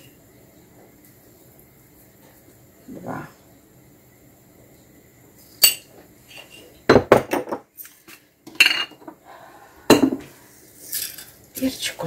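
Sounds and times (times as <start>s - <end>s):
crockery set down on counter: 6.9s - 7.7s, 9.9s - 10.3s.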